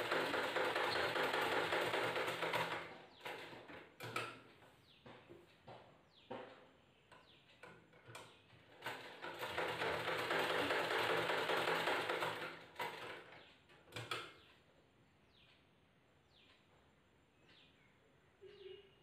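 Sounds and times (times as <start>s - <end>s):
sewing machine running: 0.0s - 3.4s, 8.8s - 13.4s
bird chirping faintly: 13.2s - 19.0s.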